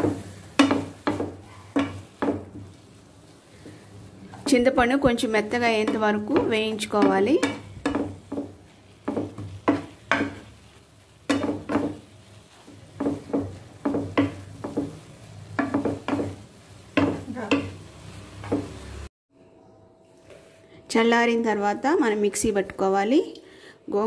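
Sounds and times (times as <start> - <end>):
faint sizzle of frying: 0.0 - 19.1
utensil scraping frying pan: 0.0 - 19.1.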